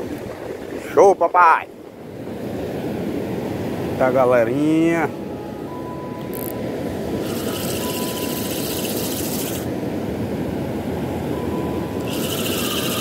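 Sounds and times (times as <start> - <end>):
wind buffeting microphone: 0.0 - 5.6.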